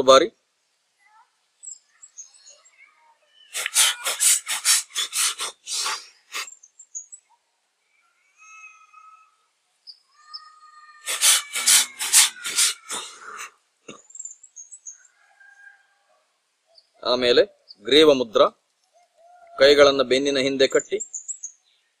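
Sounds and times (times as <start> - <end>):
birds chirping: 1.4 - 16.0, 18.8 - 22.0
forceful breath puffs: 3.5 - 6.6, 11.0 - 13.5.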